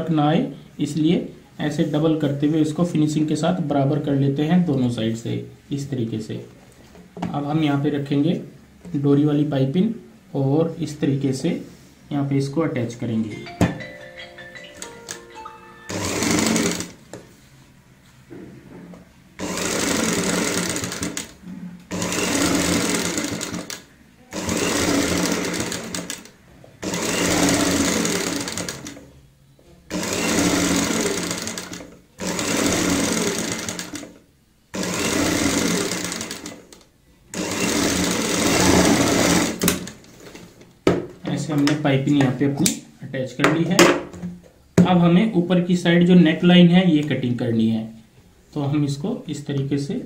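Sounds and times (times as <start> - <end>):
sewing machine stitching: 15.9 - 17.0, 19.4 - 29.0, 29.9 - 40.4.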